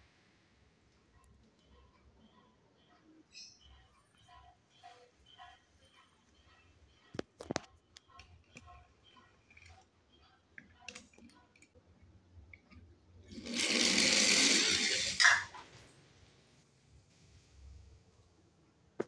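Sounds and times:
toy car rolling on wooden board: 0:13.3 - 0:15.6
toy cars clicking: 0:13.3 - 0:15.6.

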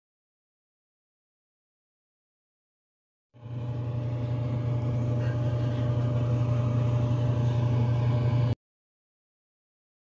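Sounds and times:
faint steady whine: 0:03.4 - 0:08.6
kitchen appliance humming: 0:03.4 - 0:08.6.

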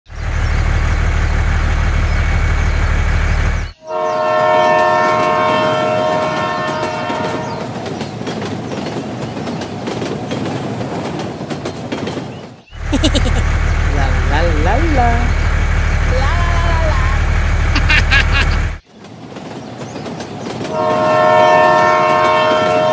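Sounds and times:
low train rumble: 0:00.1 - 0:22.9
multi-tone train horn: 0:03.8 - 0:07.7, 0:20.7 - 0:22.9
train wheels clattering on rails: 0:04.8 - 0:12.7, 0:18.8 - 0:22.9.

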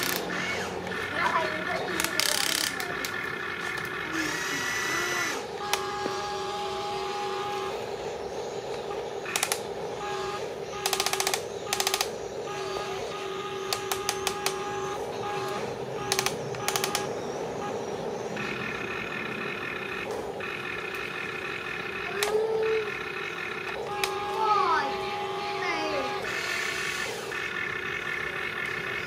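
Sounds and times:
rapid clicking: 0:00.0 - 0:04.1, 0:08.6 - 0:17.7
higher steady whine: 0:00.0 - 0:29.0
small electric motors whining: 0:00.0 - 0:29.0.

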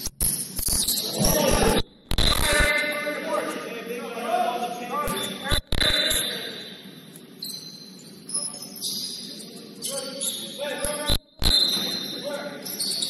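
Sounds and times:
sneakers squeaking on court: 0:07.1 - 0:10.6, 0:11.5 - 0:13.0.

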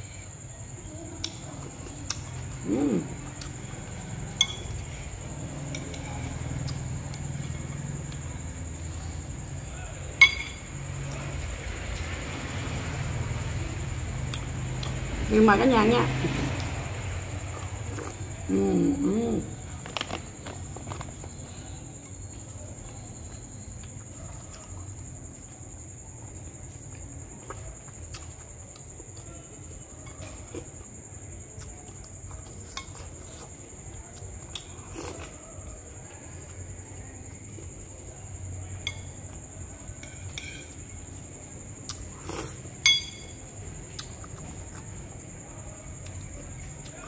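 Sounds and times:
spoon clinking on ceramic bowl: 0:04.4 - 0:04.8, 0:10.2 - 0:10.6, 0:42.8 - 0:43.3.

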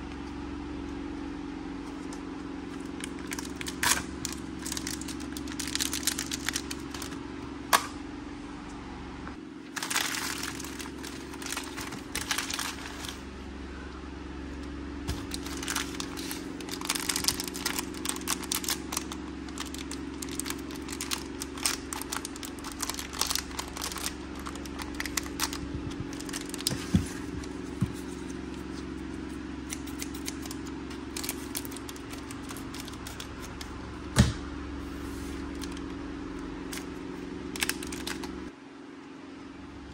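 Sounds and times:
foil and paper wrappers crinkling: 0:01.9 - 0:07.2, 0:09.7 - 0:13.3, 0:15.1 - 0:29.0, 0:29.6 - 0:33.8, 0:35.1 - 0:35.9, 0:36.6 - 0:38.4.

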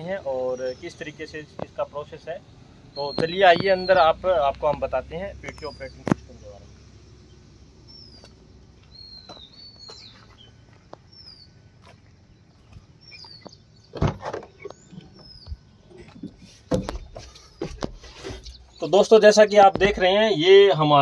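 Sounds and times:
small birds chirping: 0:00.0 - 0:21.0
knocks and thumps: 0:13.9 - 0:18.6, 0:19.6 - 0:20.2.

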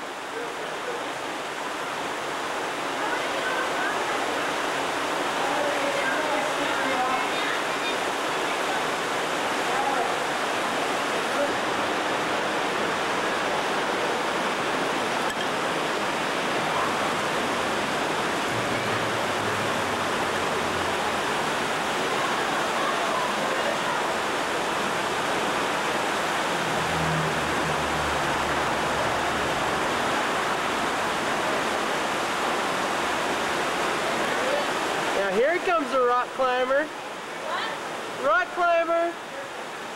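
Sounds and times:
water rushing over rocks: 0:00.0 - 0:39.9.

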